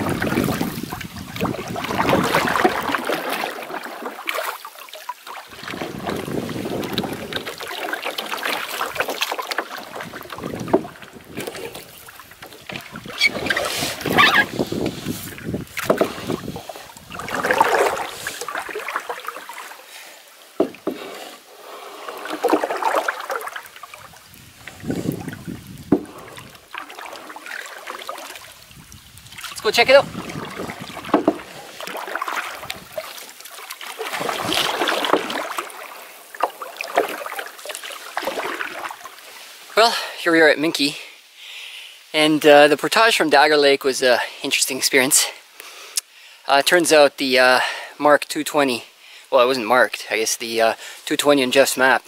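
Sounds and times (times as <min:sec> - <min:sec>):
water splashing and dripping: 0:00.0 - 0:40.1
canoe paddle stroking water: 0:00.0 - 0:40.8.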